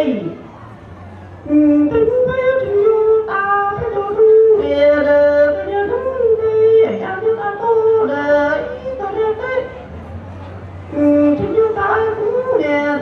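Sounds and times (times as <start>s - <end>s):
man singing into a microphone: 1.5s - 9.8s, 10.9s - 13.0s.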